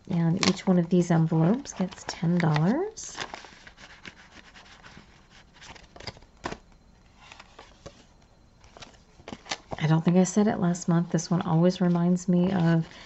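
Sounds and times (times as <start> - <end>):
paper banknotes rustling: 0.3 - 6.2.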